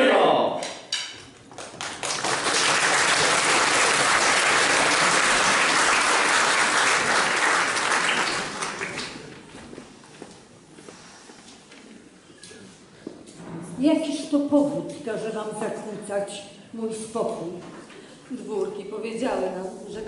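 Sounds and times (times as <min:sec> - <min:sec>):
audience applauding: 0:01.5 - 0:09.5.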